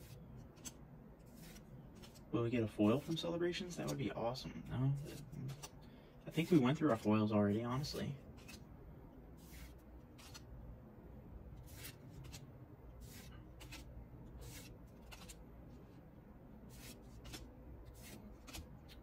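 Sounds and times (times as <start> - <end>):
cards swishing and flicking: 9.4 - 10.5, 11.6 - 15.4.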